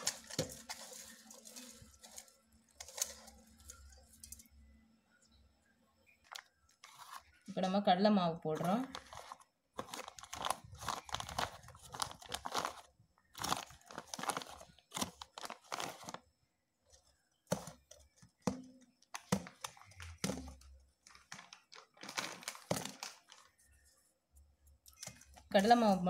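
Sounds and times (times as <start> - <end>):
cabbage rustling and crunching: 0.0 - 4.1, 8.6 - 16.2, 21.2 - 23.3.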